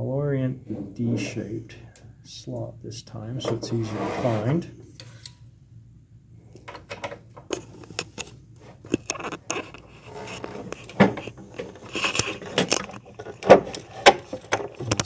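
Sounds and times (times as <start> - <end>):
plastic enclosure clicks and scrapes: 6.7 - 15.0.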